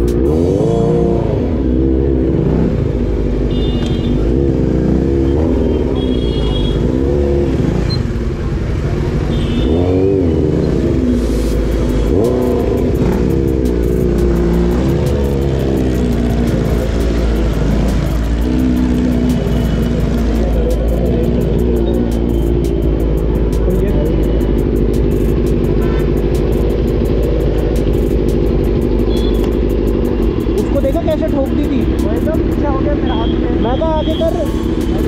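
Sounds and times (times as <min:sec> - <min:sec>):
motorcycle engine revving: 0:00.0 - 0:35.0
short horn beeps: 0:29.1 - 0:29.5.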